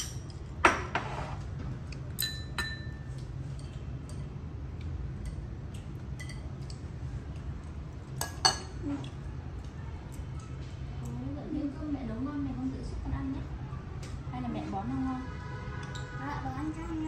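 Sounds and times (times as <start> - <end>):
utensils clinking on dishes: 0.0 - 1.2, 1.9 - 4.3, 5.2 - 9.2, 15.8 - 16.2
low steady hum: 0.0 - 17.0.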